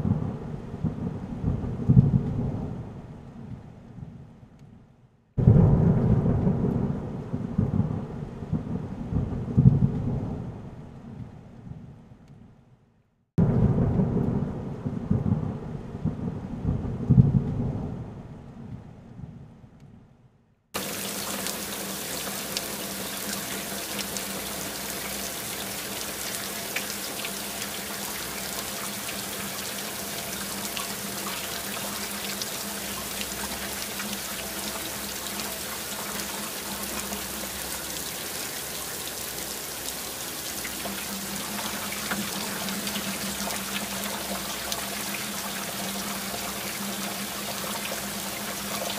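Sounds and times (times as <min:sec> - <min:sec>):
thunder rumbling: 0:00.0 - 0:04.2, 0:05.4 - 0:11.8, 0:13.4 - 0:19.4
hiss of water: 0:20.8 - 0:48.9.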